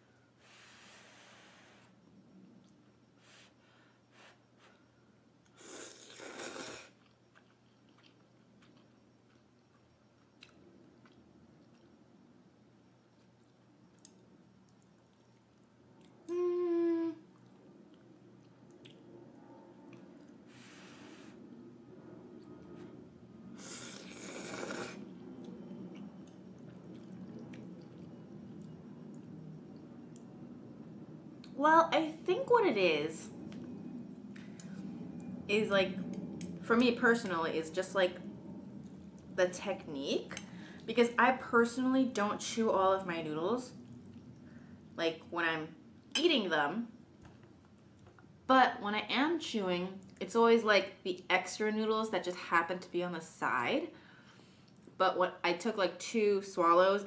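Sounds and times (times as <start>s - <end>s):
person slurping noodles: 5.6s - 6.9s, 23.6s - 25.0s.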